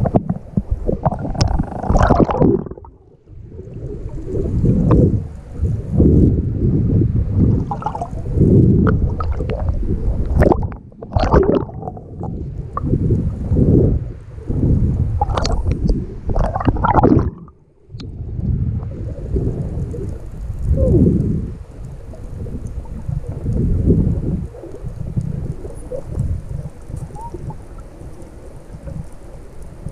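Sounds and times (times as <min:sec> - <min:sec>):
muffled underwater gurgling: 0:00.0 - 0:29.9
water splashing: 0:00.8 - 0:06.0, 0:07.4 - 0:13.6, 0:15.2 - 0:17.6.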